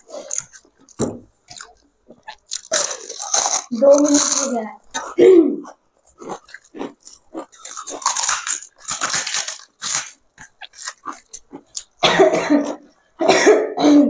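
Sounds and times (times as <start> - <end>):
eating sounds: 0.0 - 13.2
person coughing: 12.0 - 14.0.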